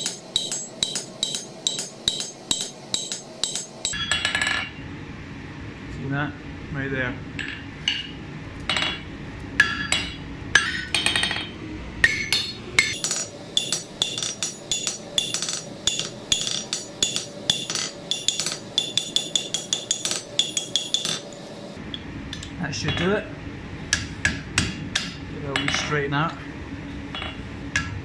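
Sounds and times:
hammer striking hot steel: 0.0s - 4.7s, 9.6s - 21.8s.

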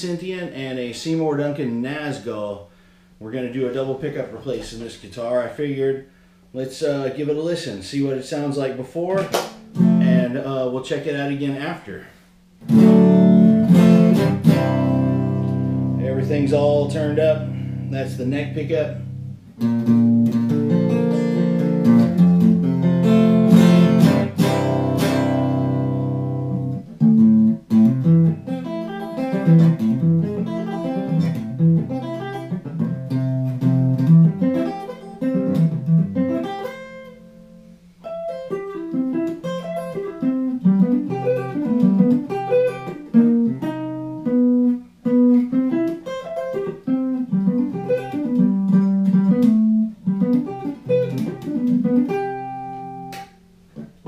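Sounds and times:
electric guitar playing: 9.5s - 10.6s, 12.6s - 54.0s.

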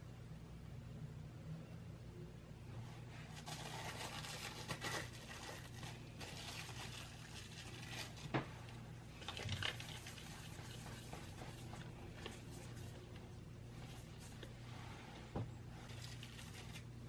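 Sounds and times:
plastic wrap crinkling: 3.2s - 14.6s, 15.7s - 17.0s.

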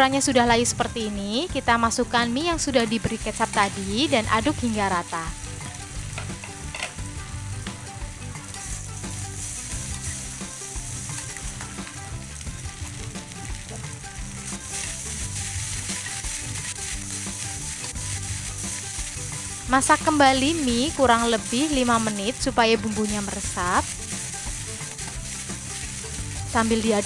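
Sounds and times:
noodles sizzling in a wok: 0.1s - 27.0s
metal spatula scraping a wok: 5.5s - 7.0s, 21.3s - 26.8s.

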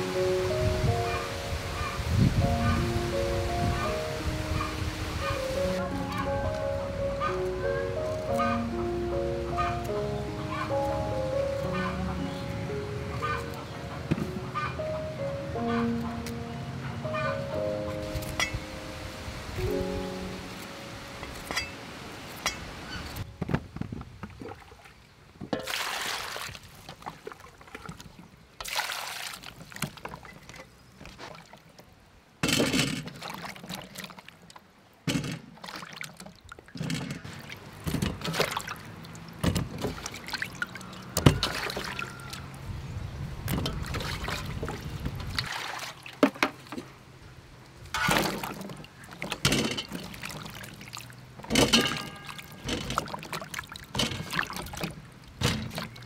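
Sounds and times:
water sloshing in metal bowl: 21.2s - 23.2s, 25.5s - 30.7s, 35.1s - 42.5s, 43.5s - 46.9s, 47.9s - 56.0s.

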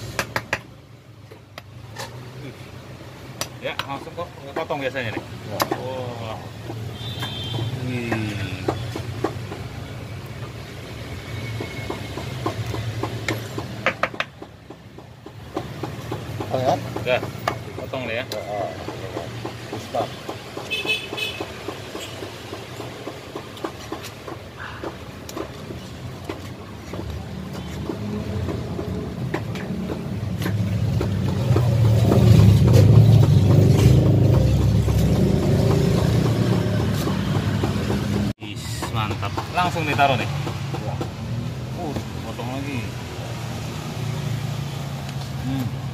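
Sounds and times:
low hum of street traffic: 0.0s - 45.9s
knife knocking on plastic board: 11.6s - 17.9s.

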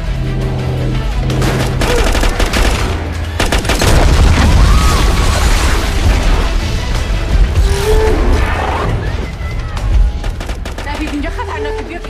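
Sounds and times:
dramatic music score: 0.0s - 12.0s
gunfire bursts: 1.4s - 4.4s, 10.1s - 11.5s
deep explosive rumble: 3.8s - 10.3s.

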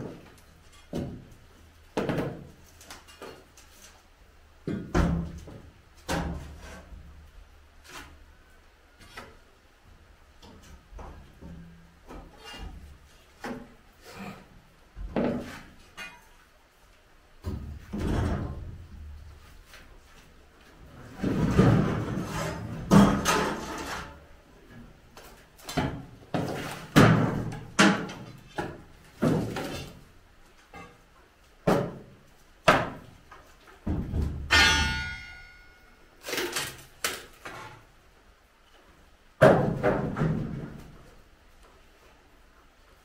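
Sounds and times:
boards clattering onto planks: 1.9s - 3.5s, 21.1s - 24.2s, 25.2s - 30.0s, 31.6s - 33.1s, 39.4s - 41.0s.

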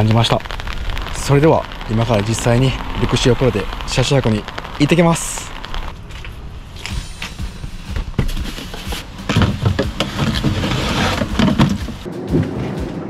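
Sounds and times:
knocks and thumps of gear loading: 8.0s - 12.1s.

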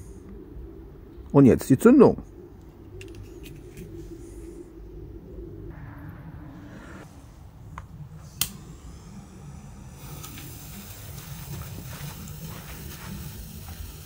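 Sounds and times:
faint low rumble: 0.0s - 1.5s, 2.1s - 14.0s
lighter clicks: 8.4s - 8.6s.

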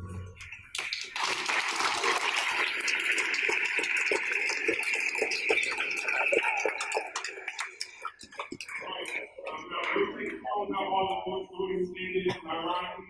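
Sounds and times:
audience applauding: 0.7s - 10.1s.

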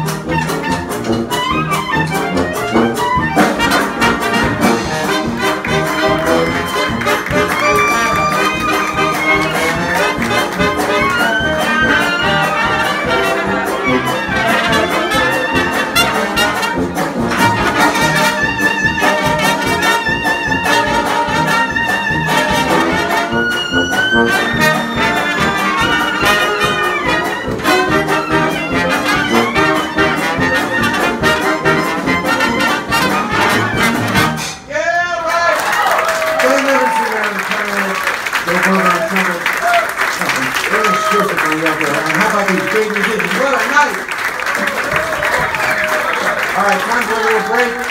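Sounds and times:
clarinet and saxophones: 0.0s - 34.5s
trumpets and trombone: 0.0s - 34.7s
tuba: 0.0s - 34.7s
jazz dance orchestra: 0.0s - 34.8s, 36.2s - 47.9s
drums: 0.0s - 37.0s, 43.6s - 47.9s.

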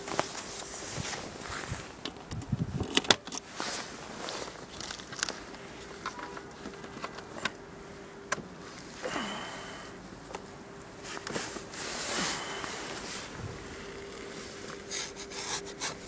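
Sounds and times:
faint steady hum: 0.0s - 16.0s
clicks and rustling of hands: 2.0s - 7.6s.

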